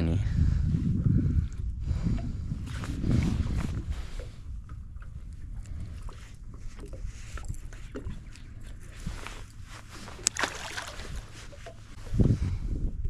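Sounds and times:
wind rumble on microphone: 0:00.0 - 0:13.0
fish splashing into water: 0:10.2 - 0:11.8.

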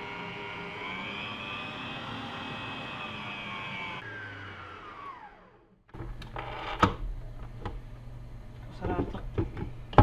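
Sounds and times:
stand mixer motor whining: 0:00.0 - 0:05.8.

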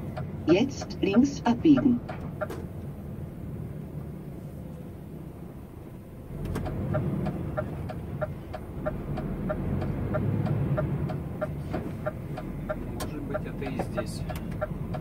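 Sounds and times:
turn signal ticking: 0:00.0 - 0:02.9, 0:06.3 - 0:15.0
truck engine rumble: 0:00.0 - 0:15.0.

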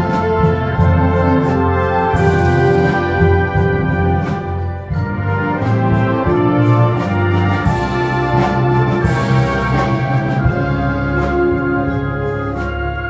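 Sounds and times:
concert band playing: 0:00.0 - 0:13.0
percussion strikes: 0:00.0 - 0:13.0.

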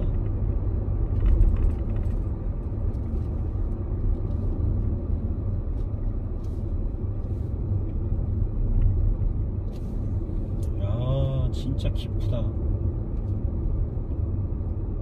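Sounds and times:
car engine rumble: 0:00.0 - 0:15.0
tyres on road: 0:00.0 - 0:15.0.

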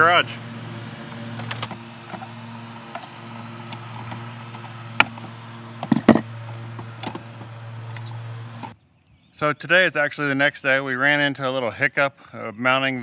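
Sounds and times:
lawn mower engine running: 0:00.0 - 0:08.8.

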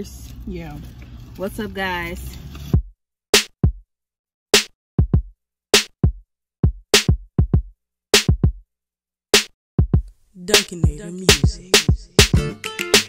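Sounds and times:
drum machine kick and snare: 0:02.8 - 0:03.8, 0:04.6 - 0:08.6, 0:09.4 - 0:13.0.

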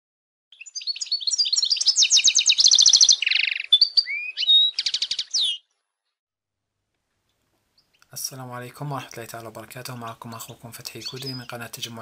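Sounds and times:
finch twittering song: 0:00.5 - 0:05.8, 0:07.7 - 0:08.1, 0:10.0 - 0:12.0.

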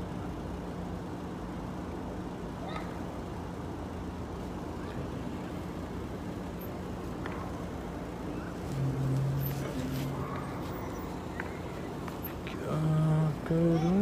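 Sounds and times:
car engine hum: 0:00.0 - 0:14.0
road noise: 0:00.0 - 0:14.0.

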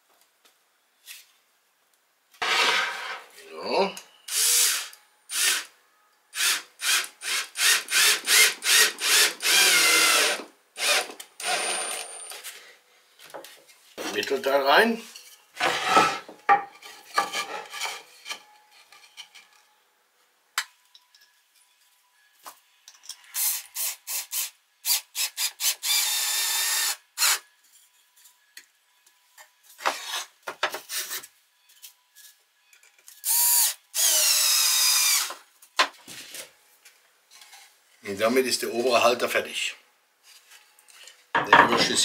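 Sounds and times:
cordless drill driving screws: 0:04.3 - 0:05.7, 0:06.4 - 0:12.3, 0:23.4 - 0:27.4, 0:33.2 - 0:35.4.

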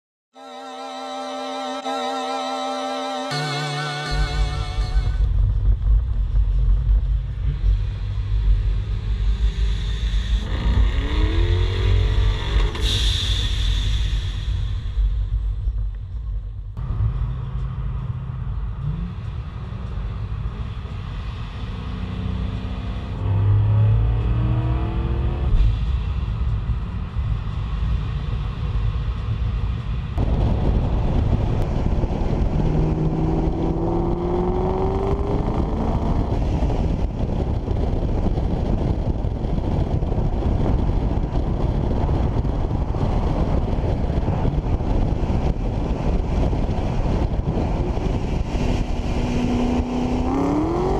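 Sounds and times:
car engine revving: 0:03.4 - 0:13.0, 0:16.8 - 0:27.4, 0:31.0 - 0:38.1, 0:47.0 - 0:50.9
road and wind noise: 0:04.0 - 0:50.9.

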